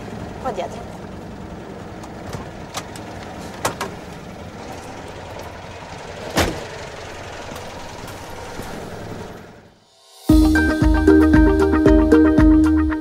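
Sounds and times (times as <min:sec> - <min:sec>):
car engine idling: 0:00.0 - 0:09.8
car door shutting: 0:06.3 - 0:06.7.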